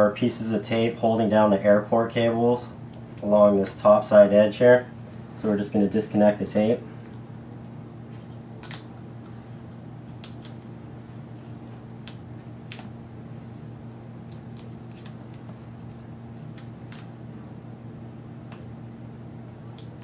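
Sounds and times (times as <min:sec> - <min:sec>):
low electrical hum: 0:00.0 - 0:20.0
tape peeling crackles: 0:08.2 - 0:09.4, 0:14.3 - 0:17.1.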